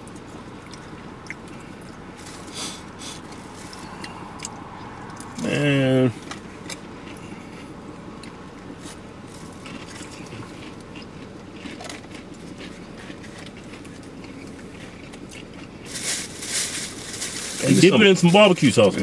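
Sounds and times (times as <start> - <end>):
wet chewing: 0.0 - 5.4, 6.2 - 16.0
rustling: 15.9 - 17.9.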